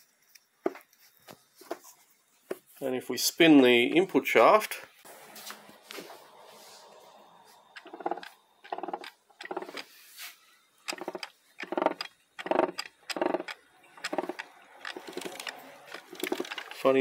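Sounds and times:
grinding growl inside gearbox: 7.8 - 9.8, 10.9 - 16.9.

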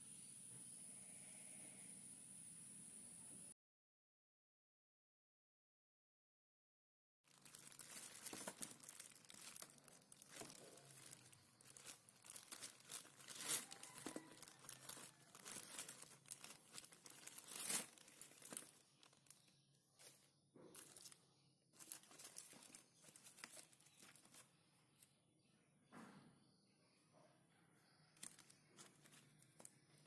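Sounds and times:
plastic bag crinkling: 7.3 - 21.2, 21.8 - 24.5, 28.2 - 30.0.

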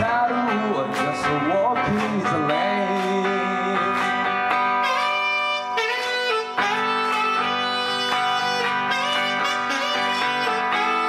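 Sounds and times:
live rock band playing: 0.0 - 11.0
saxophone melody: 4.5 - 11.0.

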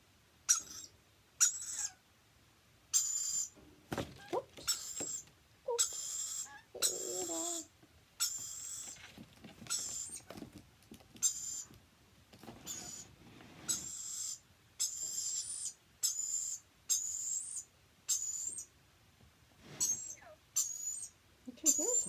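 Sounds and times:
bird harsh hissing calls: 5.8 - 9.0, 13.7 - 18.7, 19.8 - 22.0
faint rustling: 8.7 - 14.0, 19.2 - 20.3.

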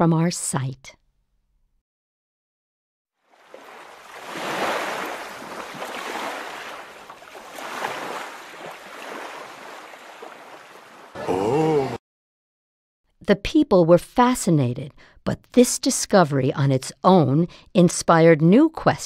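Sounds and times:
ocean waves washing in: 3.2 - 12.0.

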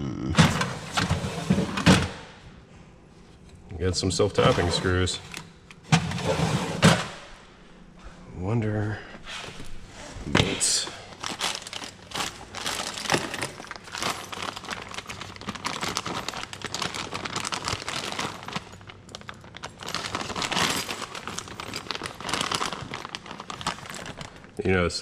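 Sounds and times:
plastic bag crinkling: 10.4 - 24.8.

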